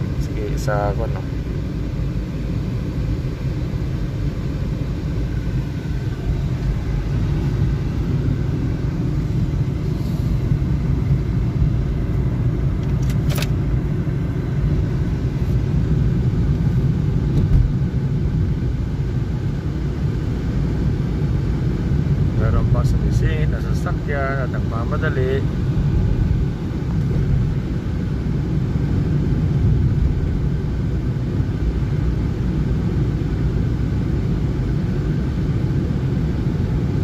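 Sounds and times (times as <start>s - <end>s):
car road and engine rumble: 0.0s - 37.0s
wind pressing on car: 17.2s - 17.8s.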